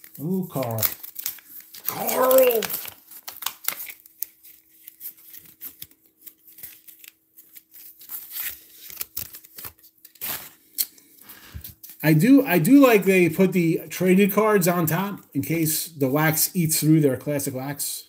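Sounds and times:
wax paper tearing and crinkling: 0.0 - 10.6.

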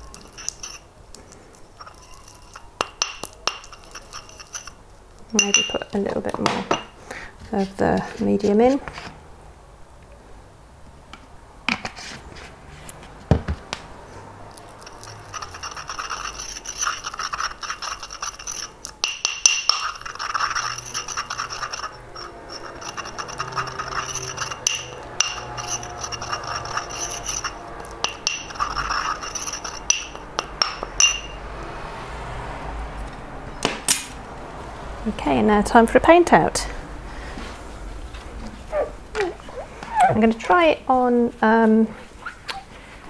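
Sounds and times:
glass rod scraping inside glass jar: 0.0 - 0.9, 1.7 - 5.9, 14.7 - 31.4.

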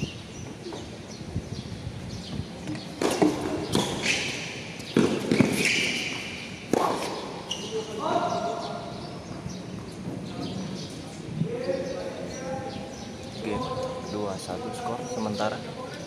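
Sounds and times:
tennis ball pops: 6.7 - 7.2.

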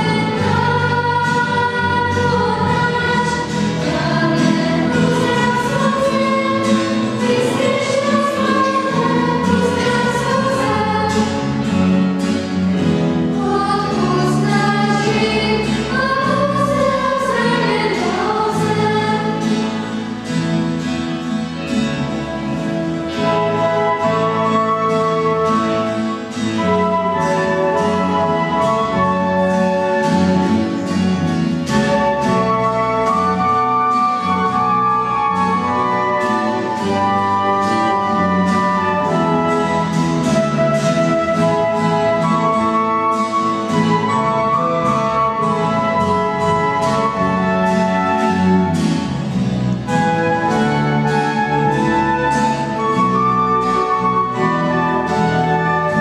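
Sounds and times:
lower accompaniment: 0.0 - 56.0
flutes playing a melody: 22.6 - 31.0, 31.6 - 49.2, 49.8 - 56.0.

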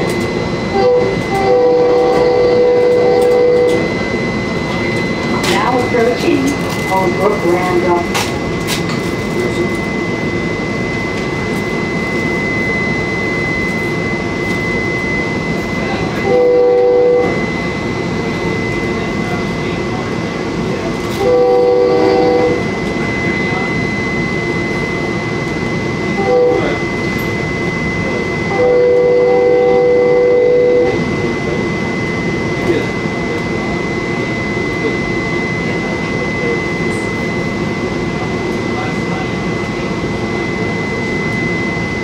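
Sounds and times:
steady high-pitched tone: 0.0 - 42.0
train wheels rumbling: 0.0 - 42.0
train horn blasts: 0.7 - 4.0, 16.0 - 17.6, 21.1 - 22.7, 26.1 - 26.9, 28.3 - 31.1.

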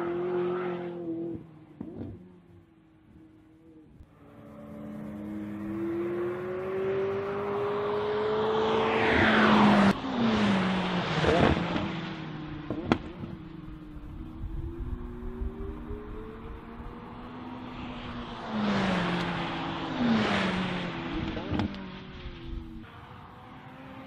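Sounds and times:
sports car accelerating past: 0.0 - 24.0.

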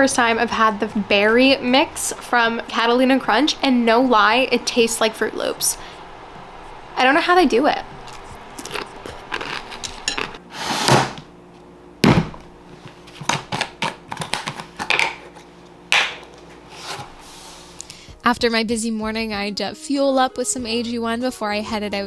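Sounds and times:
dishes and utensils clicking: 8.2 - 10.4.

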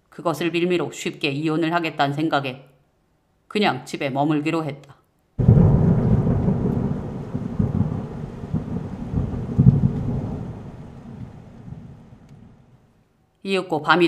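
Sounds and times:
thunder rumbling: 5.4 - 12.9.

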